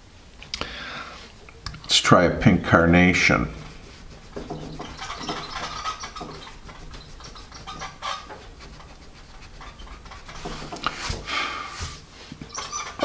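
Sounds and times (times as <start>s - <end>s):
eraser rubbing on paper: 3.2s - 13.0s.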